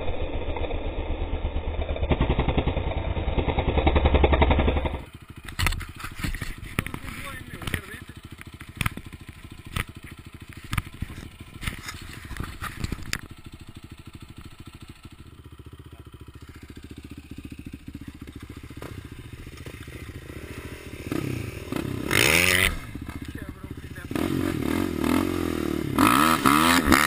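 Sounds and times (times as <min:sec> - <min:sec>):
quad bike engine idling: 0:00.1 - 0:27.0
hand rubbing camera lens: 0:05.6 - 0:07.0, 0:09.7 - 0:13.3.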